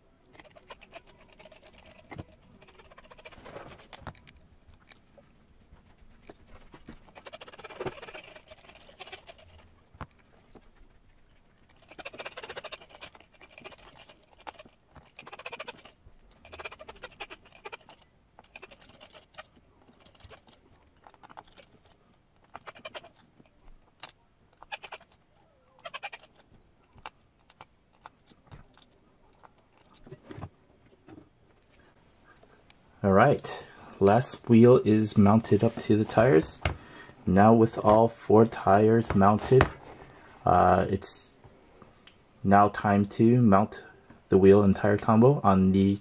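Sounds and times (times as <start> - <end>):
screws squeaking and scraping: 0.3 - 5.0, 6.9 - 9.7, 11.6 - 30.5.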